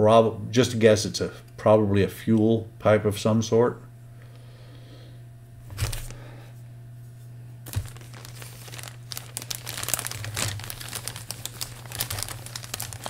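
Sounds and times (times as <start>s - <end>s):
plastic bag crinkling: 7.6s - 13.0s
plastic sprues being handled: 7.7s - 13.0s.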